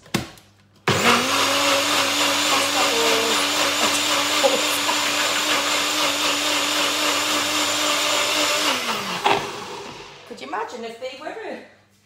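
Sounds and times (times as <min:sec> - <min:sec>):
blender running: 0:00.8 - 0:10.4.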